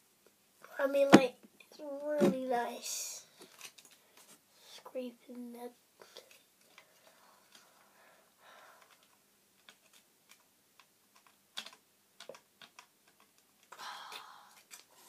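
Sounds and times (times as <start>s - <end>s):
small plastic parts clicking: 8.8s - 14.9s.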